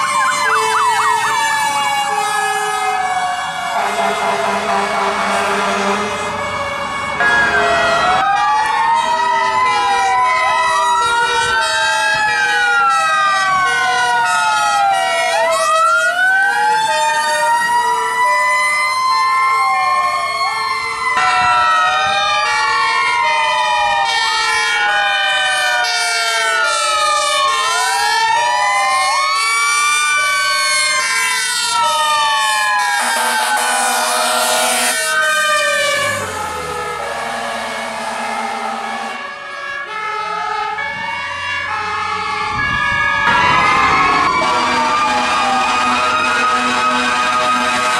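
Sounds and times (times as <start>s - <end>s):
fire truck sirens wailing: 0.0s - 47.9s.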